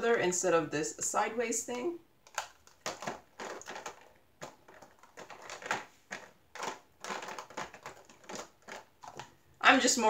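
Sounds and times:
plastic containers clicking: 2.2s - 9.4s.

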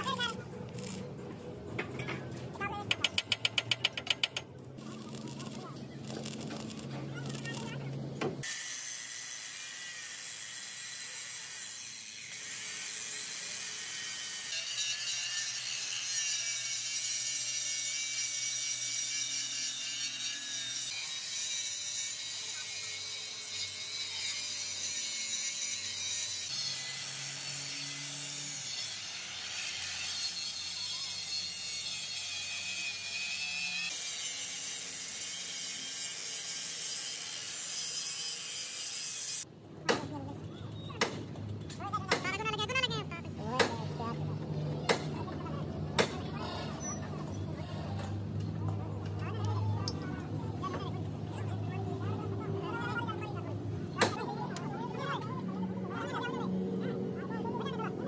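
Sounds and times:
angle grinder grinding steel: 3.3s - 39.5s.

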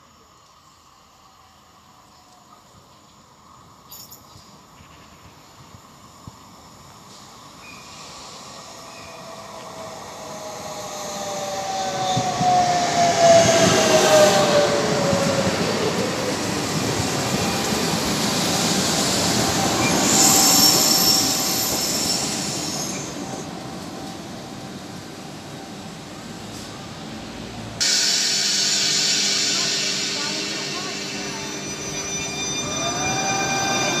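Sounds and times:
train wheels running on rails: 2.1s - 34.0s
electric train motor whine: 4.7s - 27.1s, 27.8s - 34.0s
high squeal of wheels or brakes: 19.3s - 23.6s, 28.4s - 34.0s.

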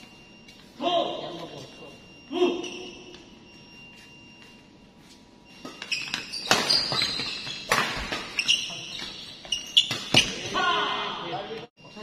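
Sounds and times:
shoes squeaking on court: 2.6s - 10.6s.

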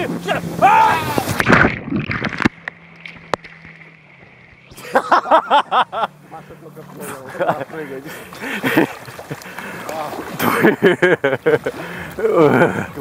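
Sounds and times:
people yelling: 0.0s - 1.4s
faint hum: 0.0s - 13.0s
rushing water: 0.0s - 13.0s
short shouts: 0.2s - 1.3s.

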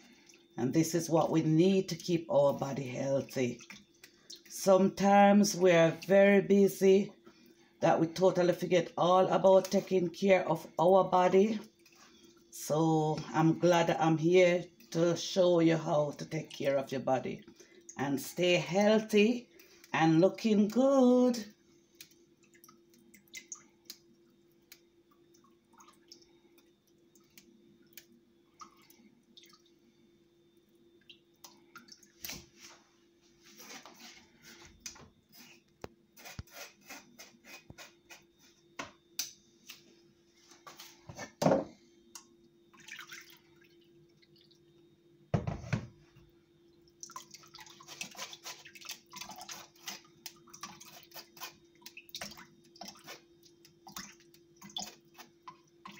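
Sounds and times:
juice dripping through sieve: 0.0s - 4.8s, 16.0s - 32.8s, 42.0s - 45.2s, 46.5s - 55.9s.

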